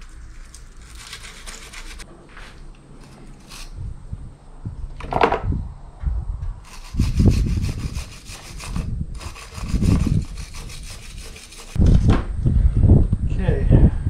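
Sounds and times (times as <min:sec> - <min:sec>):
wire brush scrubbing metal: 0:00.0 - 0:02.1, 0:03.0 - 0:03.8, 0:06.6 - 0:11.8.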